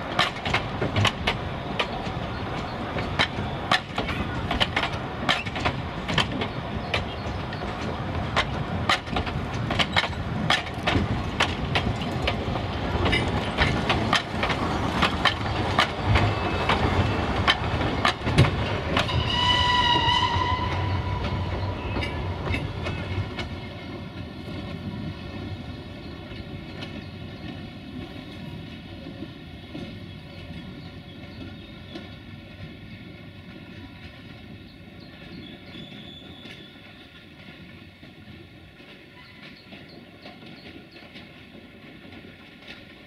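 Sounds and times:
train wheels clicking over rail joints: 0.0 - 43.0
steam locomotive whistle: 19.0 - 22.3.

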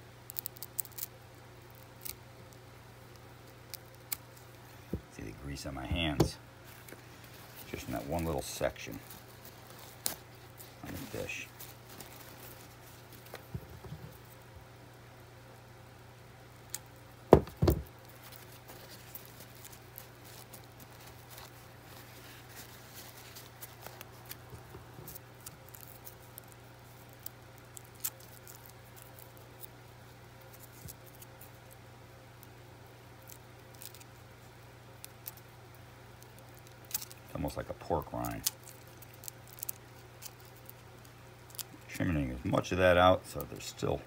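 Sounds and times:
steady low hum: 0.0 - 44.0
fingers clicking and rustling: 0.3 - 2.2, 16.6 - 29.8, 36.1 - 37.4, 38.1 - 42.0.

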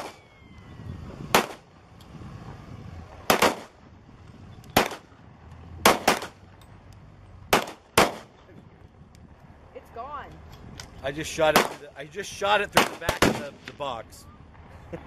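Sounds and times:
pistol shots: 1.3 - 1.6, 3.2 - 3.7, 4.7 - 5.1, 5.8 - 6.4, 7.5 - 8.3, 11.5 - 11.8, 12.7 - 13.6.

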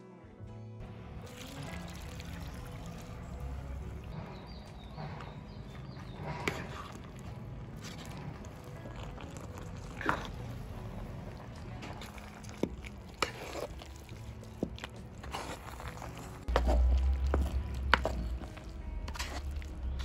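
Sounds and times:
ladle stirring thick curry: 1.2 - 20.0
low rumble: 16.1 - 20.0.

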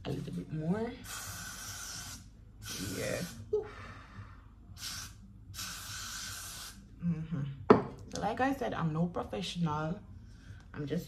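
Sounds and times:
aerosol spray hissing: 1.0 - 3.5, 4.8 - 6.8.

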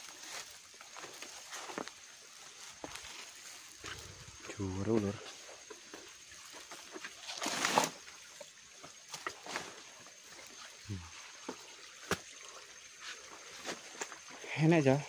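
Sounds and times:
footsteps on rocky trail: 0.0 - 7.2
rustling scrape: 7.3 - 8.0.

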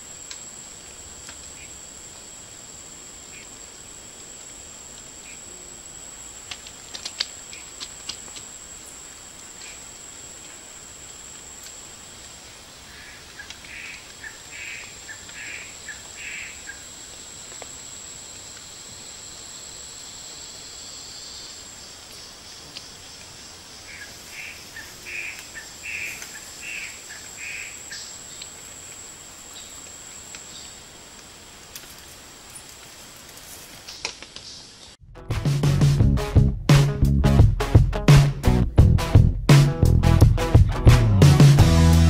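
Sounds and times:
high-pitched insect drone: 0.0 - 33.2.

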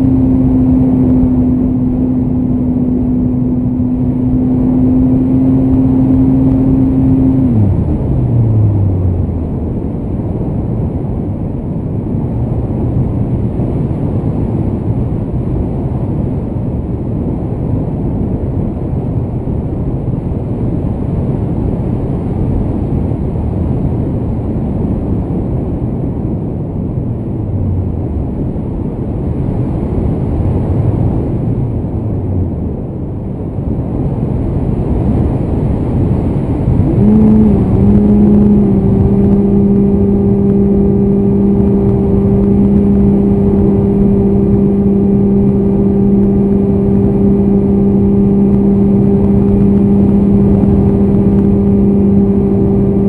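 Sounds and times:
electric motor and propeller hum: 36.4 - 53.0.

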